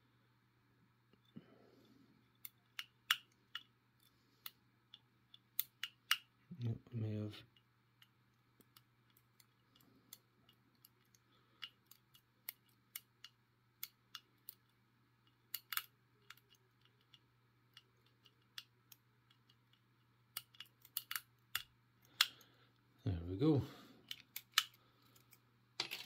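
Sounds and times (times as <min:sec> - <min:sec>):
metallic clicks of lock picking: 0:02.3 - 0:06.3, 0:08.0 - 0:22.4, 0:24.0 - 0:25.4.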